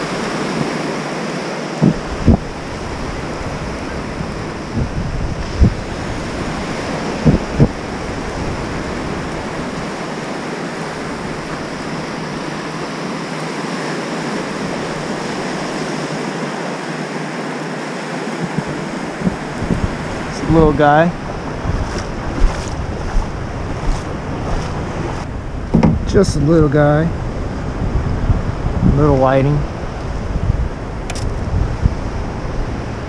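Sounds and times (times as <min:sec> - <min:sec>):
surf washing in shallow water: 0:00.0 - 0:33.0
wind thumps on microphone: 0:01.8 - 0:09.9, 0:18.4 - 0:33.0.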